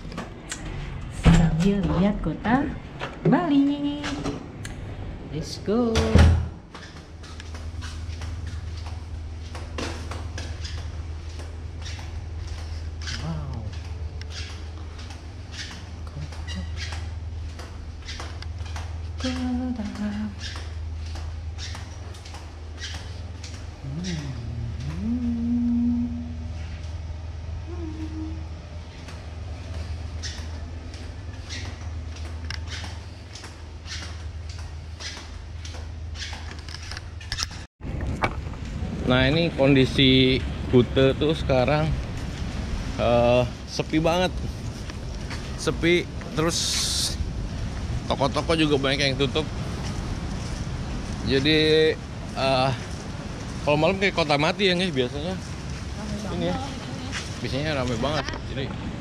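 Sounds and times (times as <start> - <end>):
steady low hum: 0.0 - 59.0
footsteps walking: 6.6 - 25.5, 28.5 - 37.7, 41.4 - 58.9.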